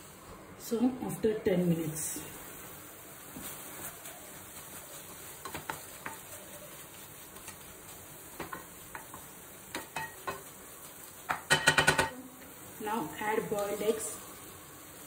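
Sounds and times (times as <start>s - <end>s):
masala sizzling in a pan: 0.0s - 15.0s
spoon scraping and tapping pan: 5.4s - 6.4s, 8.3s - 12.2s.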